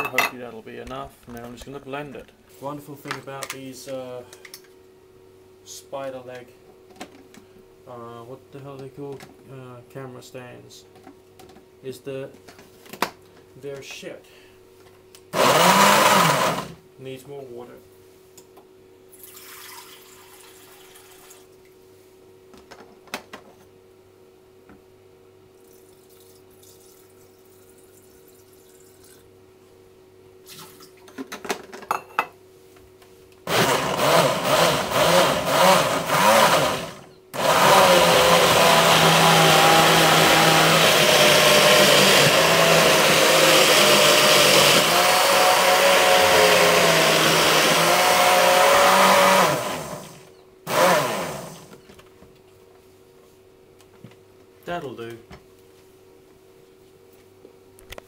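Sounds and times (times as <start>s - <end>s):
faint hum: 0.1s - 15.4s.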